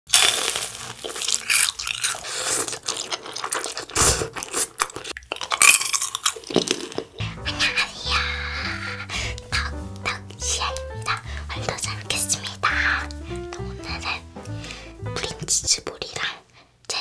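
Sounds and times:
crunchy bites: 0.1 - 7.2
slurping and chewing noodles: 0.1 - 7.2.

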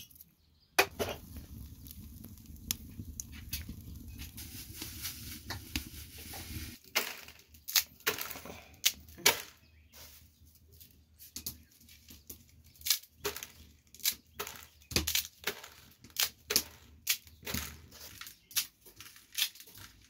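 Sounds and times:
wood fire crackling: 0.0 - 20.0
dry spaghetti snapping: 7.5 - 9.4, 12.7 - 20.0.

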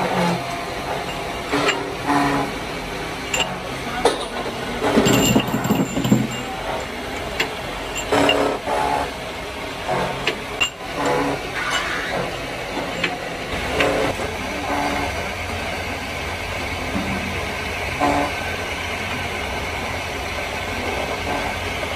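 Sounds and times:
metal clinks: 5.0 - 6.8.

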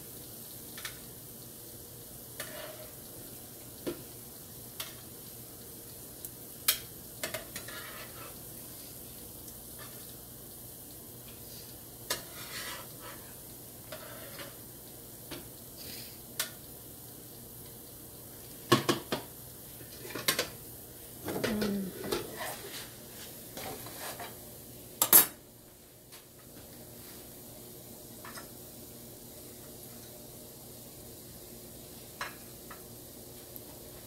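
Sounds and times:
light sizzle from pan: 0.0 - 34.0
spatula scraping frying pan: 2.3 - 3.1, 6.7 - 8.5, 12.1 - 14.6, 22.0 - 24.4.

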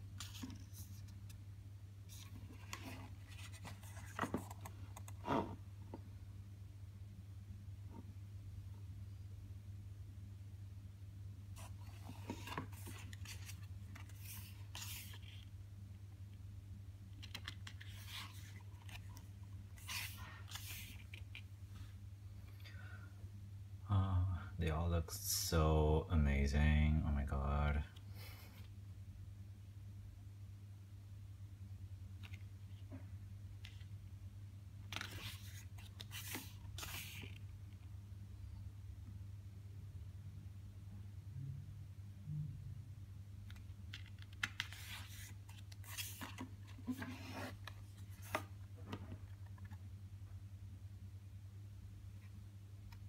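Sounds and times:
paper pages rustling: 0.1 - 1.4, 2.1 - 5.6, 11.6 - 15.5, 17.1 - 21.5, 34.9 - 37.8, 43.5 - 49.8.

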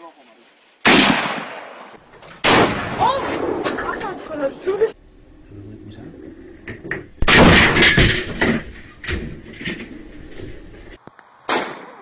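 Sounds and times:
loud sudden noises: 6.6 - 11.9.

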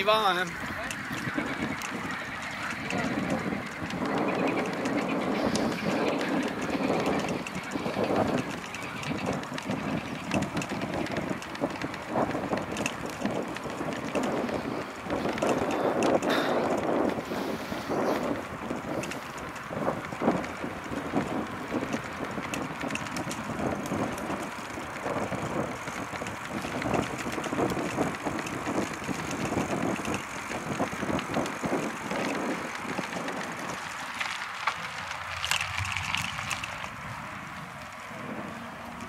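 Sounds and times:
bicycle tyre rumble on pavement: 0.0 - 39.0
wind buffeting microphone: 0.0 - 39.0.

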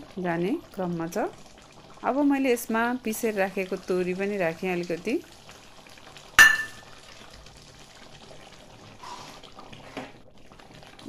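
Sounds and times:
pan simmering: 0.0 - 11.0
metallic clink of kitchen utensil: 6.4 - 6.9.

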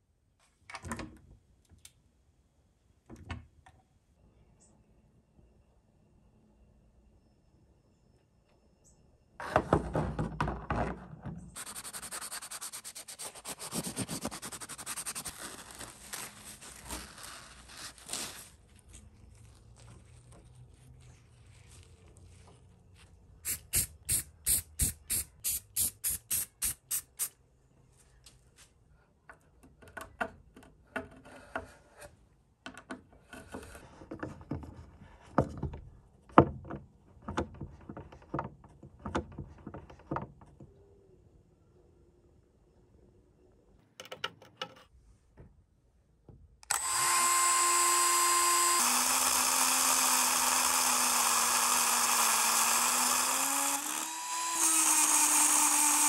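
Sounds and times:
metal rubbed on sanding block: 11.6 - 15.6.

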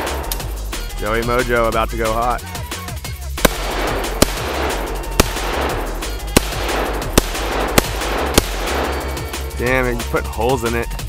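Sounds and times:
music with heavy bass: 0.0 - 11.0
rifle shots: 3.4 - 9.4.

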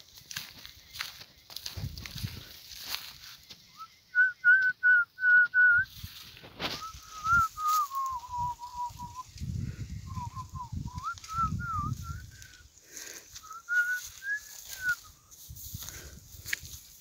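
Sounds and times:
person whistling a tune: 3.7 - 6.1, 6.7 - 12.7, 13.3 - 15.3.

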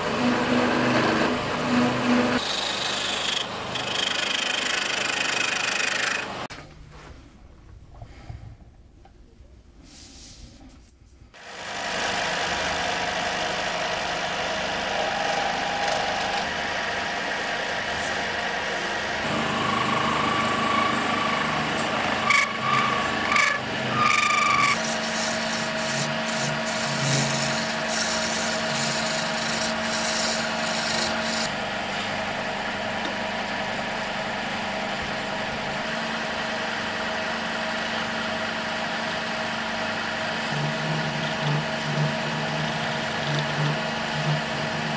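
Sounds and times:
lathe tool rasping hiss: 19.2 - 31.5.

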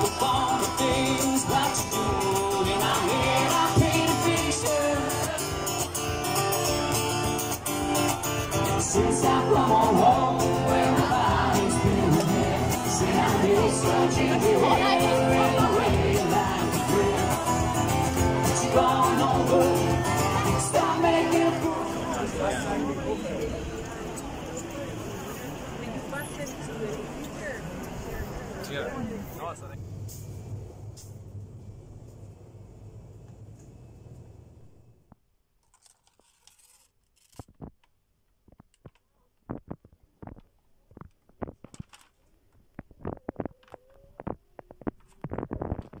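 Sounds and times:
man singing: 0.0 - 5.6, 8.7 - 22.2
acoustic guitar strumming: 0.0 - 22.2
steady low rumble: 29.6 - 35.1
paper rustling: 35.6 - 37.9, 40.9 - 42.3.

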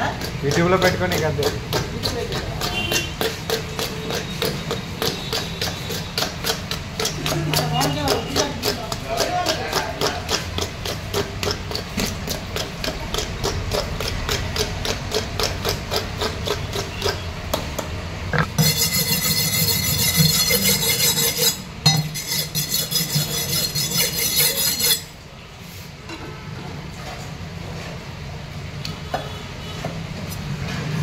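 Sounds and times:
knife scraping fish scales: 18.4 - 25.2.

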